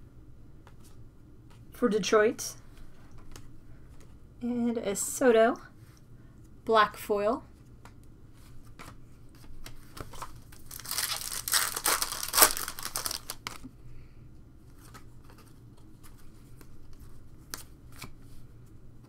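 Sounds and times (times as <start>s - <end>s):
wrapper and cards rustling: 8.3s - 13.7s
foil wrapper tearing: 10.6s - 13.7s.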